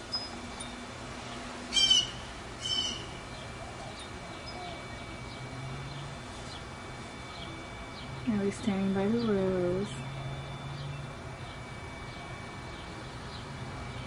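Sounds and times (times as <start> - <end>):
bird raspy calls: 1.7 - 5.0.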